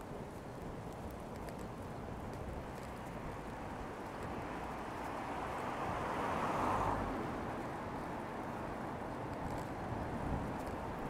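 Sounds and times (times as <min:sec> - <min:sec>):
car tyres hissing on wet road: 0:04.3 - 0:08.2.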